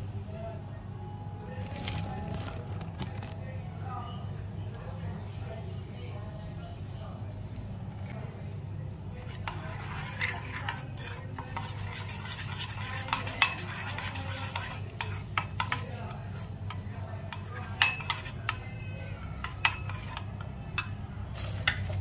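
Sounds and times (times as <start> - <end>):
spoon scraping thick mixture: 1.6 - 3.6, 9.1 - 22.0
spoon clinking on bowl: 12.7 - 15.9, 17.3 - 18.7, 19.4 - 21.0.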